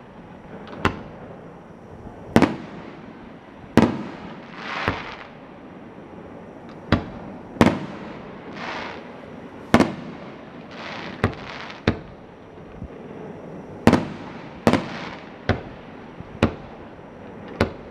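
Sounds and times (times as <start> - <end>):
fireworks bursting bangs: 0.0 - 1.4, 2.1 - 5.4, 6.7 - 17.9
fireworks hissing: 2.1 - 5.4, 7.0 - 12.1, 12.8 - 16.9.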